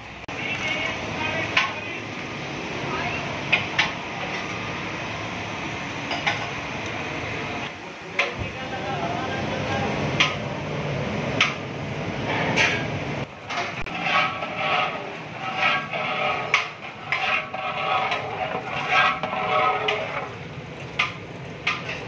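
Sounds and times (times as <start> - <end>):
gas burner flames rushing: 0.0 - 22.0
ladle scraping inside pot: 13.5 - 20.4.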